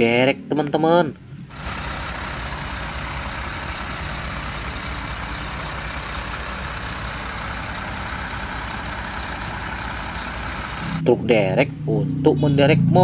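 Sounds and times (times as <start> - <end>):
diesel engine idling: 1.5 - 11.1.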